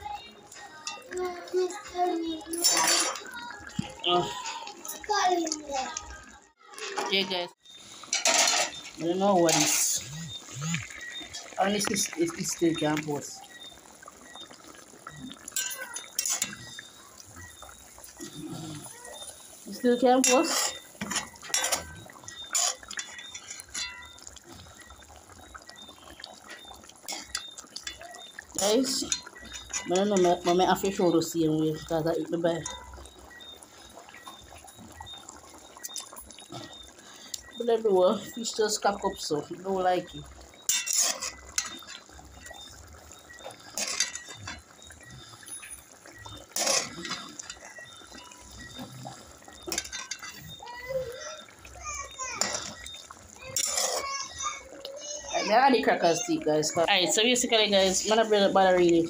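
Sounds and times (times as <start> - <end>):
liquid moving in cooking pot: 0.0 - 59.0
spoon scraping metal pot: 2.5 - 3.3, 8.0 - 12.6, 19.7 - 24.3, 28.6 - 31.9, 40.6 - 42.6, 43.4 - 48.0, 49.6 - 50.6, 53.5 - 54.1
broth sloshing: 6.0 - 59.0.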